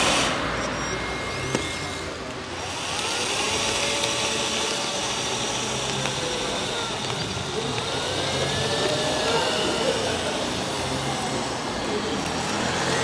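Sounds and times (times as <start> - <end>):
electric motors and hydraulic pump whining: 0.0 - 13.0.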